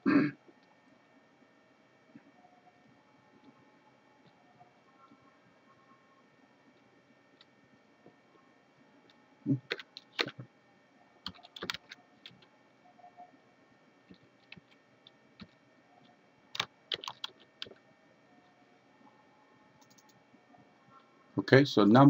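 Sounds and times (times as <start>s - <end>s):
computer keyboard typing: 9.6s - 10.4s, 11.2s - 12.4s, 14.1s - 15.6s, 16.5s - 17.8s, 19.8s - 20.2s.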